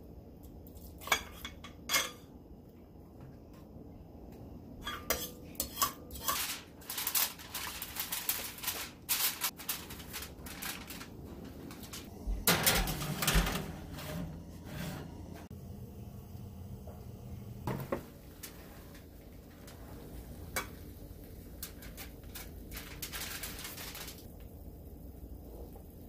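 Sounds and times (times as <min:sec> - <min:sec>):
metal tray scraping on oven rack: 0:04.8 - 0:09.4, 0:11.8 - 0:15.5
aluminium foil crinkling: 0:05.5 - 0:13.7, 0:18.2 - 0:24.4.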